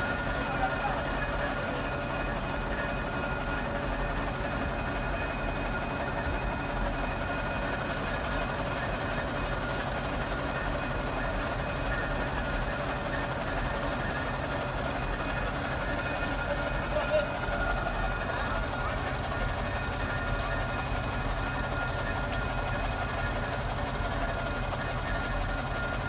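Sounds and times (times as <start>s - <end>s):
railway machinery rumble: 0.0s - 26.0s.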